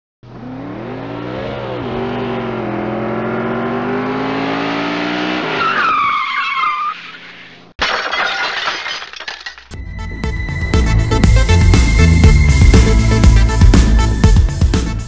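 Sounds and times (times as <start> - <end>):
car engine revving: 0.2 - 5.6
tyres screeching: 5.4 - 7.7.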